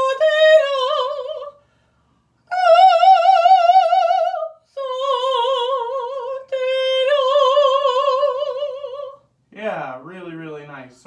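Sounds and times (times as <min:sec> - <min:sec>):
woman singing opera: 0:00.0 - 0:01.6, 0:02.4 - 0:09.3.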